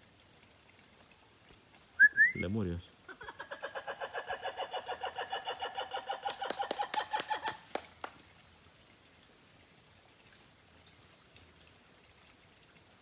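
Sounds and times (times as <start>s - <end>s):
animal's rapid pitched calls: 3.1s - 7.7s.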